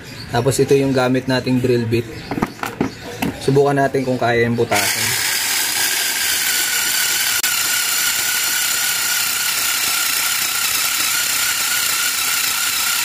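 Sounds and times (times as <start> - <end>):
cordless screwdriver whining: 4.7 - 13.0.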